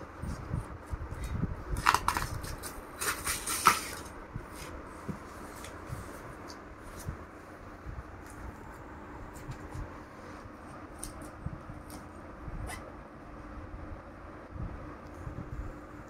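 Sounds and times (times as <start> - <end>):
box cutter slicing packing tape: 1.8 - 4.1.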